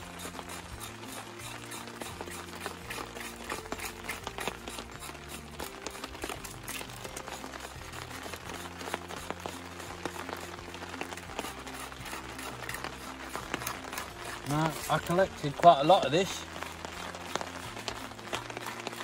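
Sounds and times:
knife scraping bark: 0:00.0 - 0:16.0
background music low notes: 0:00.0 - 0:19.0.

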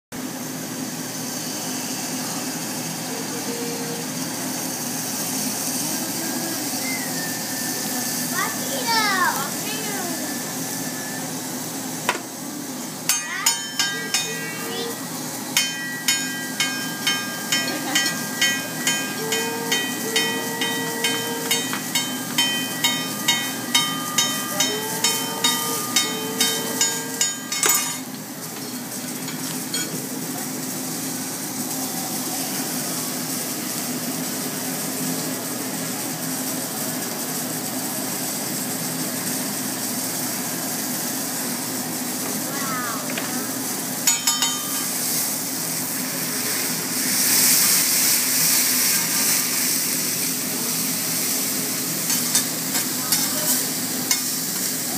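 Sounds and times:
griddle sizzling: 0:00.2 - 0:54.9
metal spatulas clacking on griddle: 0:21.1 - 0:28.0, 0:44.1 - 0:44.9, 0:52.1 - 0:54.3.

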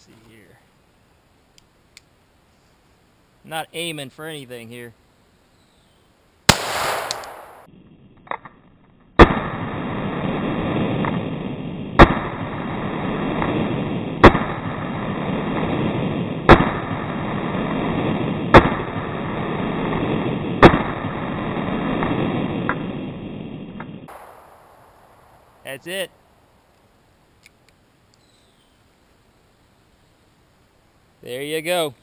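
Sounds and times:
faint click: 0:01.5 - 0:02.1, 0:26.7 - 0:28.3
revolver shots: 0:06.5 - 0:07.7, 0:23.8 - 0:25.6.

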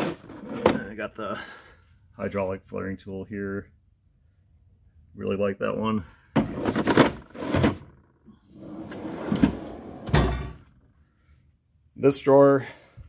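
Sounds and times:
metal drawers sliding: 0:00.0 - 0:00.9, 0:06.4 - 0:08.0, 0:08.6 - 0:10.7
drawer thudding to a stop: 0:09.0 - 0:10.6.

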